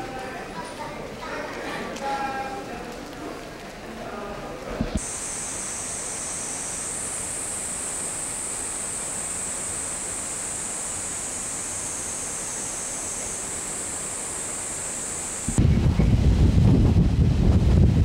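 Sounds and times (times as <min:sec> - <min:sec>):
cicadas shrilling: 0:05.0 - 0:15.6.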